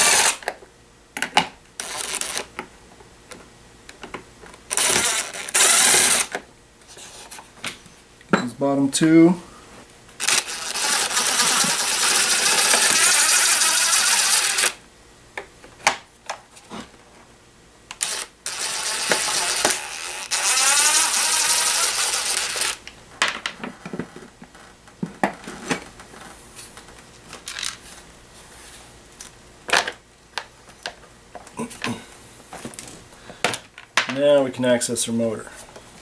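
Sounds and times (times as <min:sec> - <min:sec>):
impact driver running: 0:00.0 - 0:00.5, 0:04.7 - 0:06.4, 0:10.2 - 0:14.8, 0:17.9 - 0:22.8.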